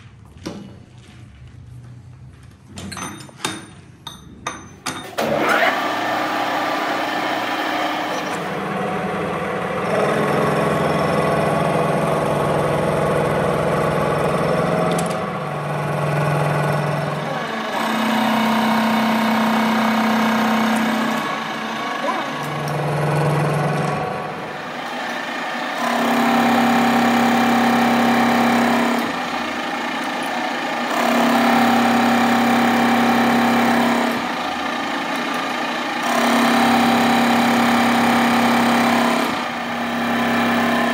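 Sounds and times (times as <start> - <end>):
workshop machine humming: 0.0 - 40.9
sharp metal knocks: 2.8 - 5.2.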